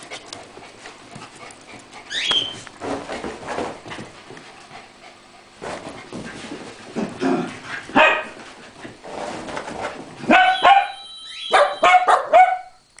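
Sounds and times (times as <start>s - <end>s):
dogs barking high yaps: 8.0s - 8.4s, 10.3s - 12.8s.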